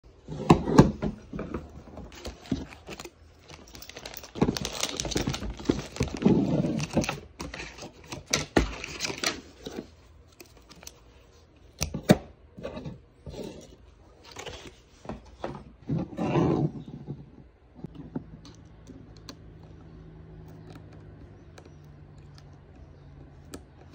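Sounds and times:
plastic wrapping crinkling: 0:02.1 - 0:09.6.

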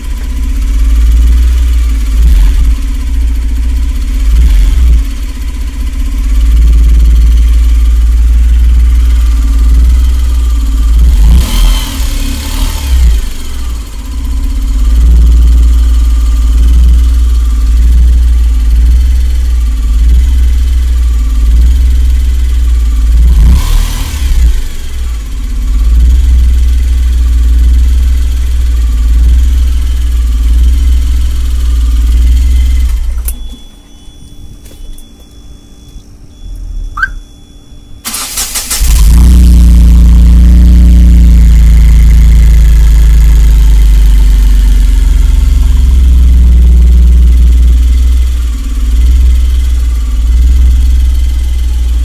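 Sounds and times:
engine cranking: 0:38.0 - 0:39.3.

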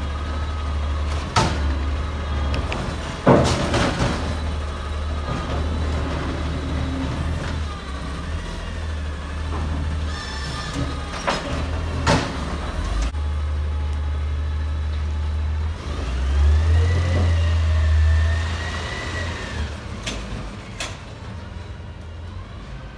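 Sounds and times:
garbage truck accelerating: 0:00.0 - 0:22.9.

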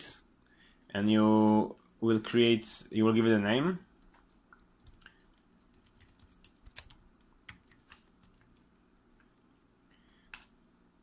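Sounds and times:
typing on a keyboard: 0:04.0 - 0:08.8.

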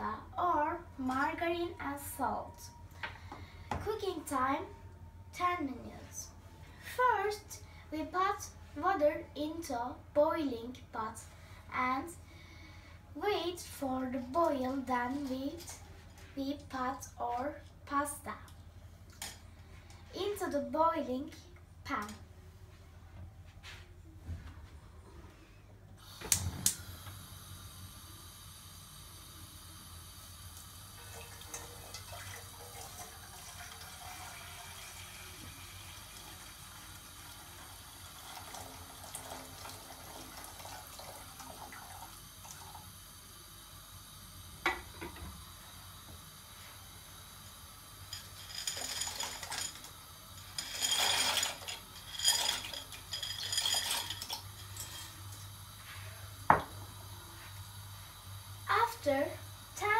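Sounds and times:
water pouring into pot: 0:30.5 - 0:43.1
kitchenware clinking: 0:48.1 - 0:55.3.

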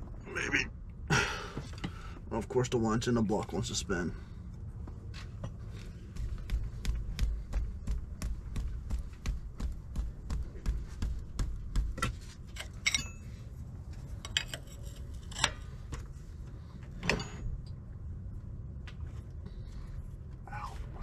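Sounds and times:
sharp metal clinks: 0:12.7 - 0:13.4.

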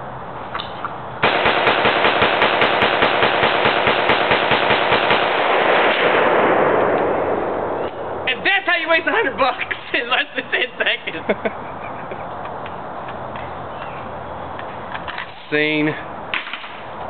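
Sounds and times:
rapid gunfire: 0:01.2 - 0:06.8.

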